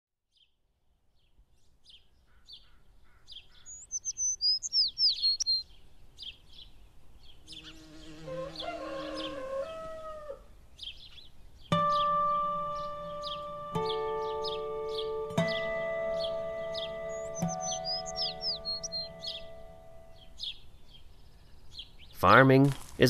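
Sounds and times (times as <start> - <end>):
songbirds chirping: 0.2 - 23.0
rooster crowing: 8.1 - 10.5.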